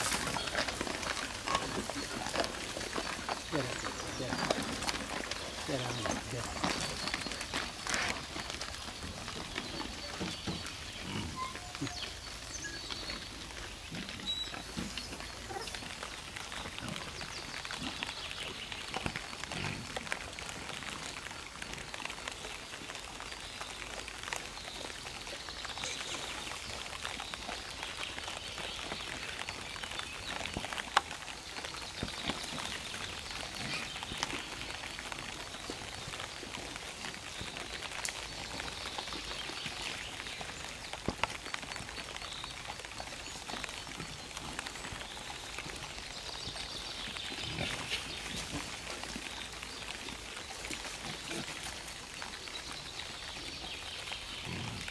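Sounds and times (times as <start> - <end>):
wild boars grunting: 0.0 - 8.6.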